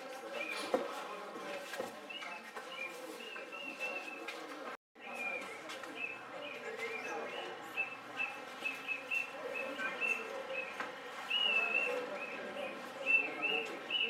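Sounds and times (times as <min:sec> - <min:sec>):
room noise murmur: 0:00.0 - 0:14.0
birds chirping: 0:05.0 - 0:14.0.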